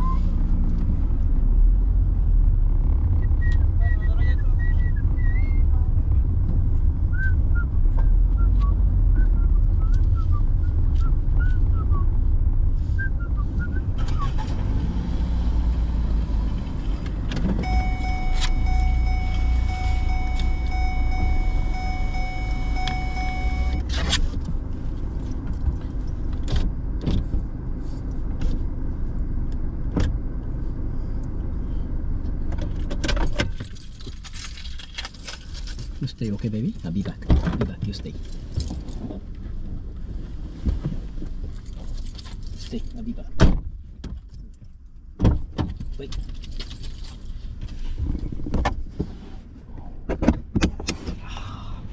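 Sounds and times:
car engine idling: 0:16.0 - 0:32.9
steady high tone: 0:17.6 - 0:23.8
keys jangling: 0:33.5 - 0:36.0, 0:41.5 - 0:43.1, 0:45.8 - 0:47.4.

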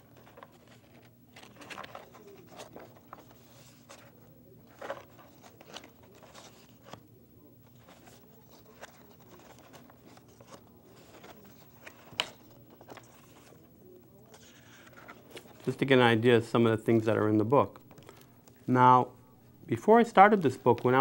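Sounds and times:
paper crinkling: 0:00.0 - 0:15.9
paper pages rustling: 0:00.0 - 0:15.9, 0:20.2 - 0:21.0.

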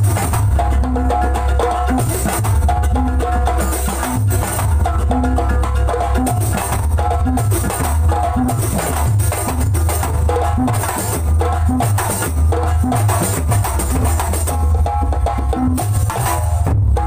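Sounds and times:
barrel drum: 0:00.0 - 0:17.0
deep booming bass drums: 0:00.0 - 0:17.0.

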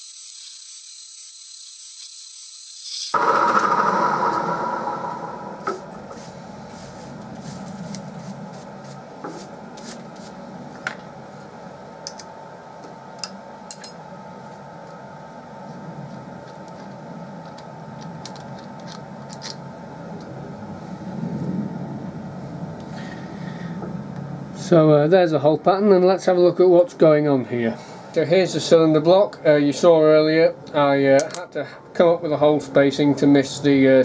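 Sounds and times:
milling machine running: 0:03.1 - 0:06.3
steady low hum: 0:03.1 - 0:34.0.

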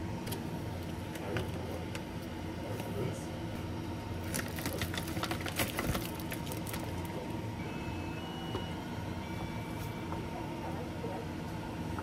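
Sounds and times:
steady low hum: 0:00.0 - 0:12.0
plastic wrapper crinkling: 0:04.2 - 0:07.3.

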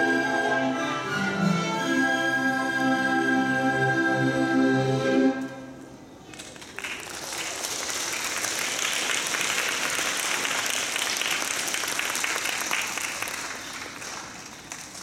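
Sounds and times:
audience applauding: 0:06.3 - 0:15.0.

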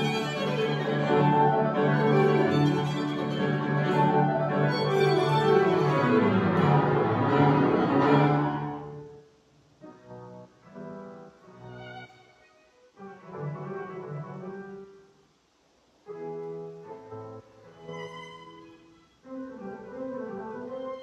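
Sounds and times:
violin and keyboard playing: 0:00.0 - 0:09.1, 0:11.5 - 0:14.8, 0:17.6 - 0:21.0.

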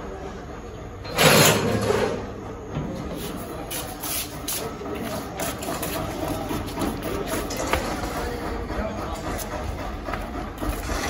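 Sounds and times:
metal gate scraping open: 0:01.0 - 0:02.4
footsteps: 0:02.8 - 0:11.0.

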